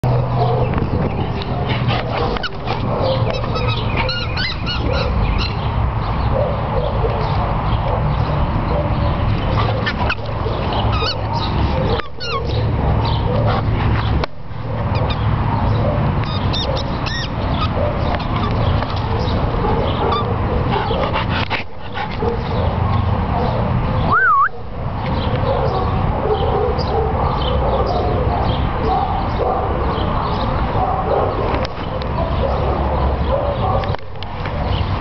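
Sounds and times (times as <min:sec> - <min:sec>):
wind rumble on microphone: 0:00.0 - 0:04.1
squeaky dog toy squeaking: 0:03.3 - 0:04.8, 0:16.3 - 0:17.3.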